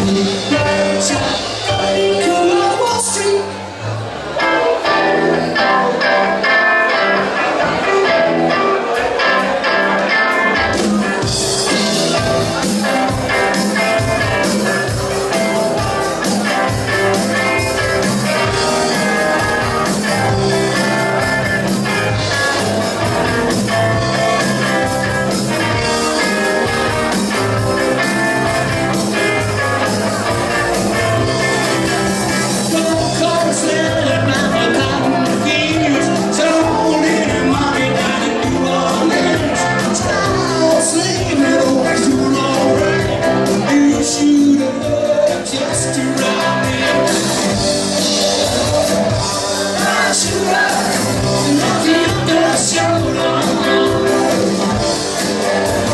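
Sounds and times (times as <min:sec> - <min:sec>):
live rock band playing: 0:00.0 - 0:55.9.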